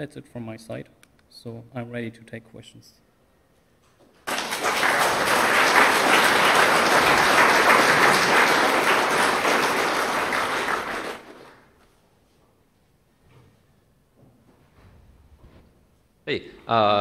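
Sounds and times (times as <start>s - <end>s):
audience applause: 4.2s - 11.7s.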